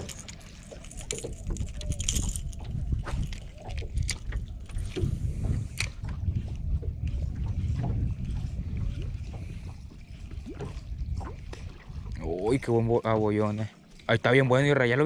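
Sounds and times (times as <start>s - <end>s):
low rumble: 0.0s - 12.7s.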